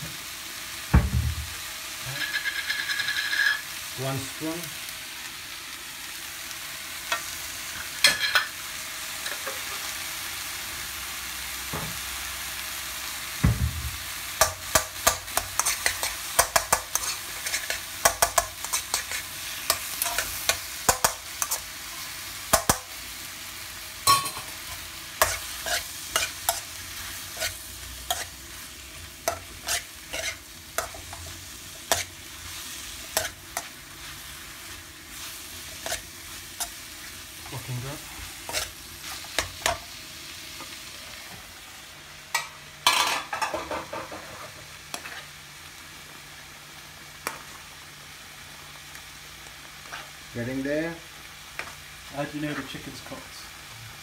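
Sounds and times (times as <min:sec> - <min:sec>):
vegetables sizzling in a wok: 0:00.0 - 0:54.0
metal spoon scraping a wok: 0:02.2 - 0:03.6, 0:15.3 - 0:21.6, 0:25.2 - 0:28.3, 0:29.2 - 0:31.3, 0:33.1 - 0:33.7, 0:35.7 - 0:36.8, 0:38.3 - 0:39.8, 0:44.1 - 0:45.3.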